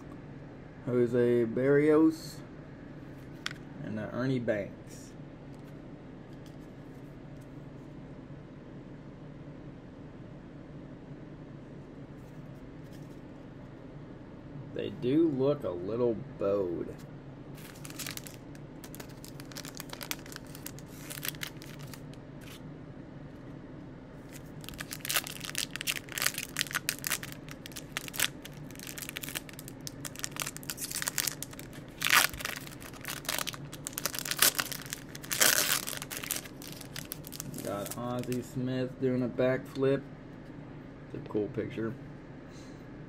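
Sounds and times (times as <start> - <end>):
steady low hum: 0.0 - 43.0
wrappers tearing and crinkling: 17.6 - 22.6, 24.3 - 38.4.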